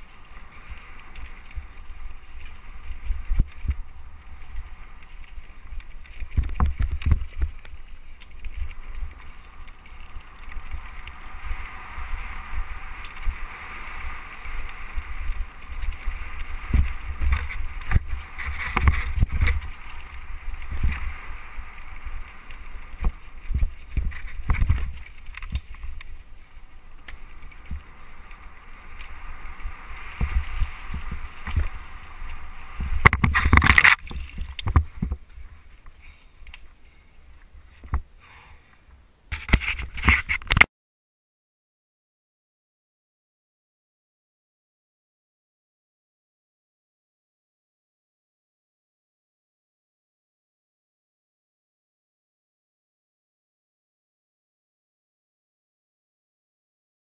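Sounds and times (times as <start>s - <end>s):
bike tyres hissing over leaves: 0.0s - 38.7s.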